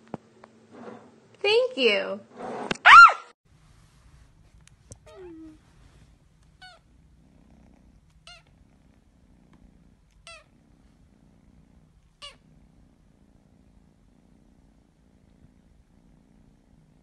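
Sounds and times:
kitten purring: 4.2s - 17.0s.

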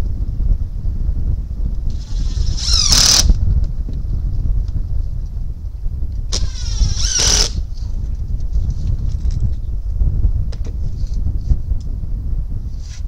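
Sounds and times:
wind buffeting microphone: 0.0s - 13.0s
power drill whine: 1.9s - 3.4s, 6.3s - 7.6s.

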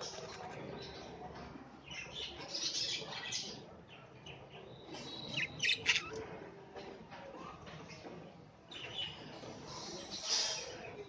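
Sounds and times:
budgerigars chattering: 5.0s - 6.2s.

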